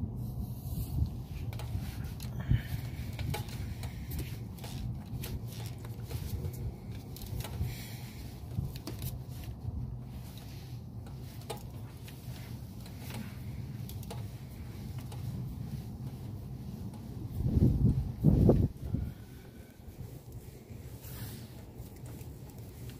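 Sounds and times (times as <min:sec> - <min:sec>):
low rumble: 0:11.8 - 0:21.6.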